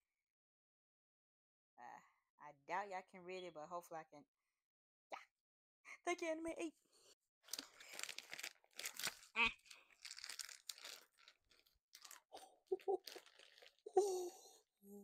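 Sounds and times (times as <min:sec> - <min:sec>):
plastic bag crinkling and tearing: 0:07.5 - 0:13.9.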